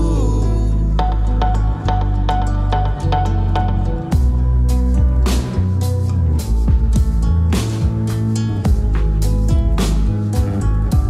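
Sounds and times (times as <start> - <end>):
held bass notes: 0.0 - 11.0
drum hits with steady beat: 6.6 - 11.0.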